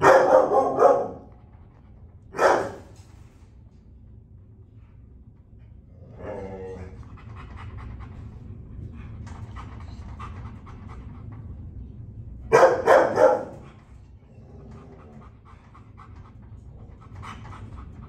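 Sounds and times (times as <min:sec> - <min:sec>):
dog barking: 0:00.0 - 0:01.3, 0:02.4 - 0:02.9, 0:12.5 - 0:13.7
dog panting: 0:06.9 - 0:11.9, 0:12.6 - 0:18.0.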